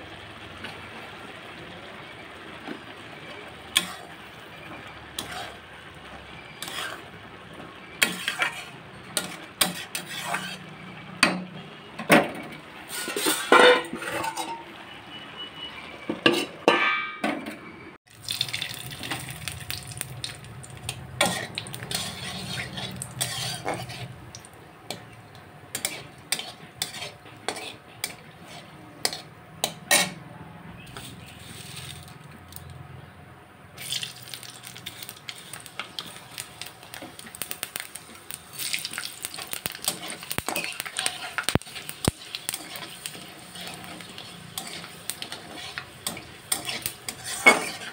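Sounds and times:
hot oil sizzling: 0.0s - 16.8s, 18.0s - 47.9s
spices crackling in oil: 0.1s - 11.0s, 18.1s - 30.2s, 30.8s - 32.9s, 33.7s - 47.9s
metal spatula scraping a pan: 3.7s - 4.2s, 5.2s - 5.6s, 6.4s - 7.2s, 7.9s - 11.4s, 12.8s - 14.7s, 16.1s - 17.6s, 20.2s - 30.2s, 30.8s - 32.6s, 38.6s - 47.9s.

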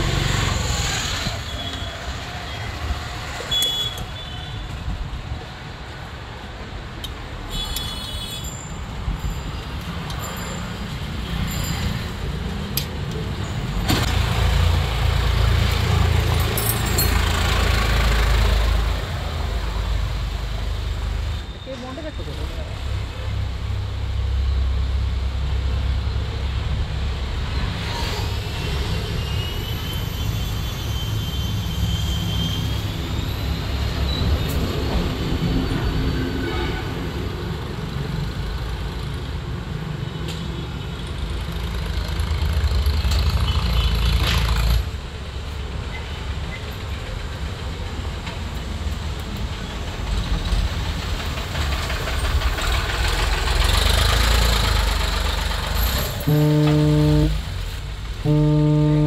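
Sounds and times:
low mechanical rumble: 58.2s - 59.0s.

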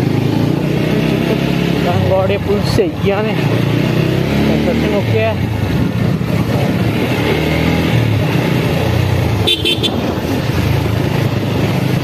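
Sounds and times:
motorcycle engine running: 0.0s - 12.0s
horn beeps: 9.4s - 10.0s.

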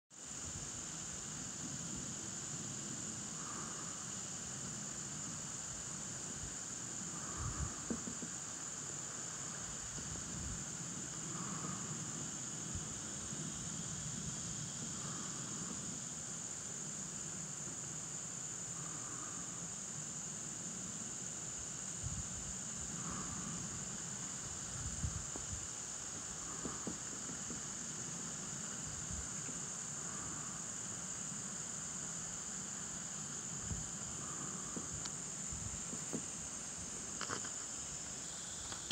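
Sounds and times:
high-pitched hiss: 0.1s - 38.9s
person breathing softly: 3.2s - 5.2s, 7.0s - 8.4s, 10.9s - 12.9s, 14.8s - 16.0s, 18.7s - 19.8s, 22.8s - 25.3s, 29.8s - 31.5s, 33.7s - 36.2s
breath puffs on microphone: 6.0s - 8.5s
person breathing close to microphone: 7.0s - 8.3s, 11.2s - 12.2s, 22.9s - 24.0s, 33.7s - 36.2s
faint knocks: 7.8s - 8.4s.

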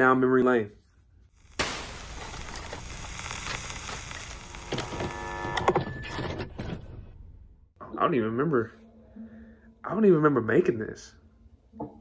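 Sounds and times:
tape static hiss: 1.4s - 6.5s
brief whine: 2.2s - 6.6s
tape player whirring and clicks: 2.6s - 6.8s.

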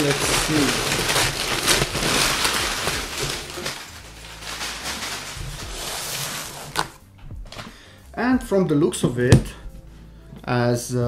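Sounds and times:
packing paper crinkling: 0.0s - 7.0s.

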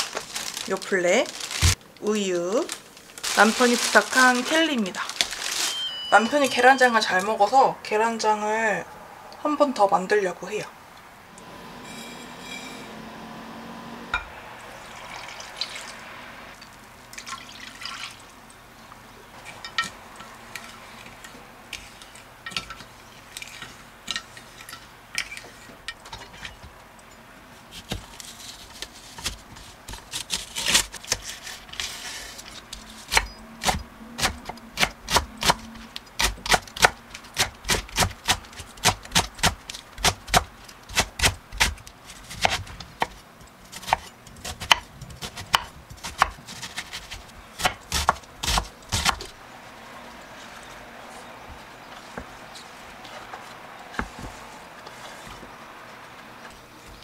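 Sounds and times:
knife chopping on wooden board: 43.8s - 49.3s.

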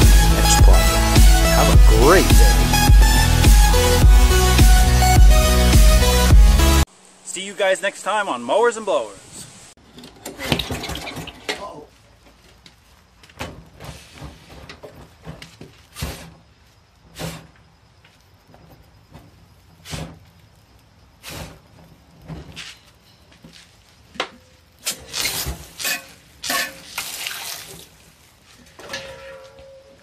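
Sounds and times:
water spraying: 24.8s - 28.5s.

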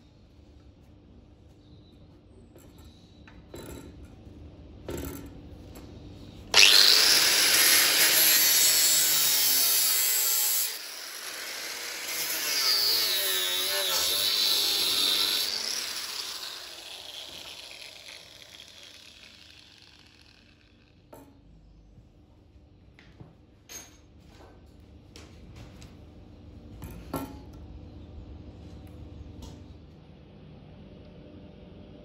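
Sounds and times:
angle grinder cutting steel: 6.5s - 20.9s.

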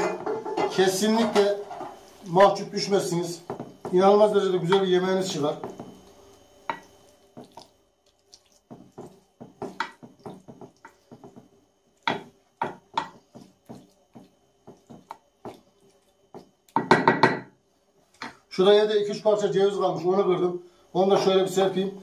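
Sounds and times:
spatula slapping thick sauce: 6.7s - 16.6s.

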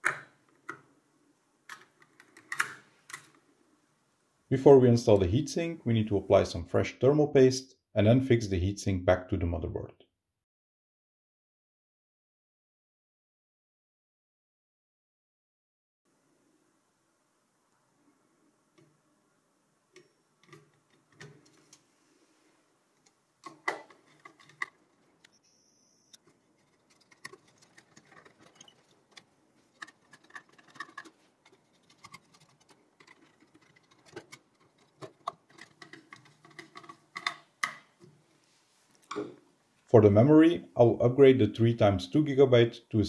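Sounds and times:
small metal clicks and scrapes: 23.0s - 25.3s, 26.1s - 37.8s.

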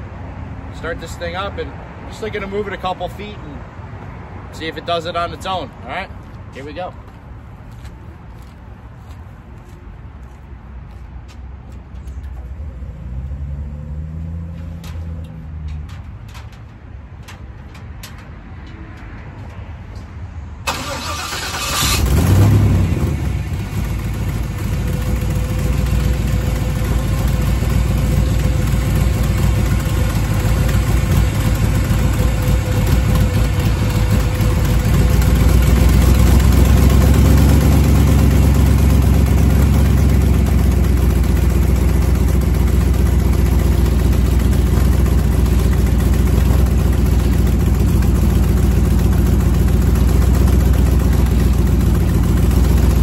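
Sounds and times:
car engine starting and running: 20.5s - 53.0s.

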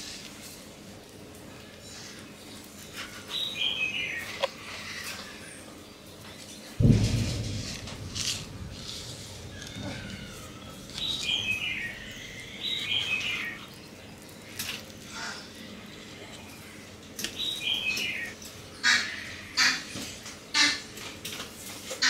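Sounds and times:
bird chirping calls: 9.8s - 14.0s.

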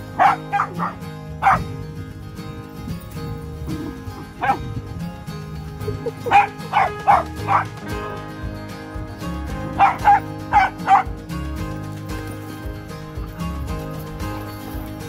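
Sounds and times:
background music: 0.0s - 15.0s
dog barking: 0.2s - 1.6s, 3.8s - 4.7s, 6.0s - 7.8s, 9.8s - 11.1s.

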